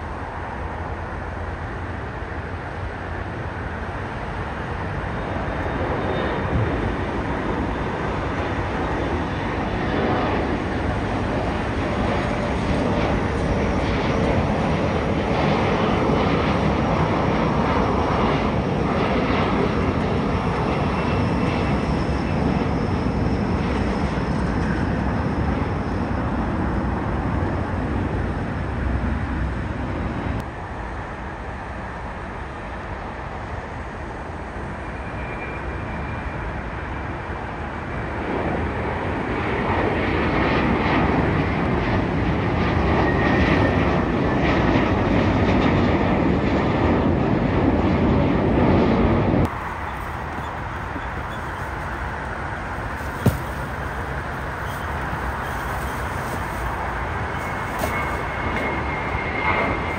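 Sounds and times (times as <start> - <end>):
jet engines climbing: 0.0 - 59.9.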